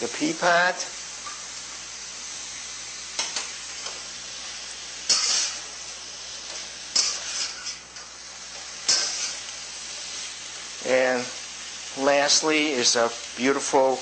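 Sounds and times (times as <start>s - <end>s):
food sizzling in a wok: 0.0s - 14.0s
metal utensils scraping wok: 5.0s - 9.6s.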